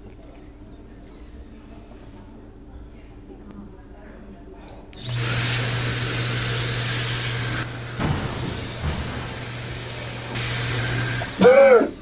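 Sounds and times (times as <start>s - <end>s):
hand dryer blowing: 5.0s - 12.0s.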